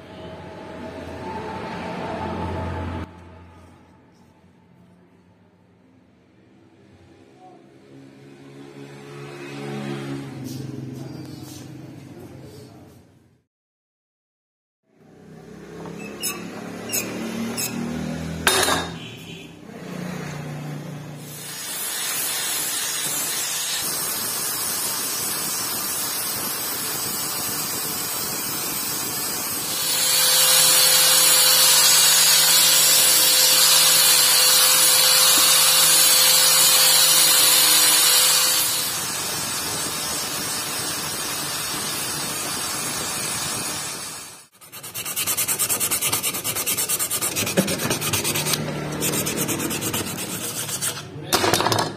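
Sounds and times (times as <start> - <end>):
angle grinder whine: 29.6 - 43.3
steady scraping noise: 44.6 - 51.2
wooden handle rubbed on abrasive: 44.6 - 51.2.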